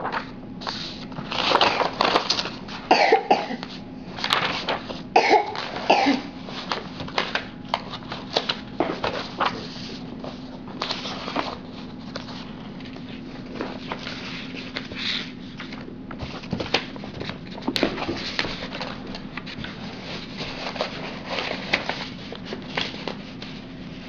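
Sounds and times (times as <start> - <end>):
paper rustling and shuffling: 0.0 - 2.9, 3.6 - 24.0.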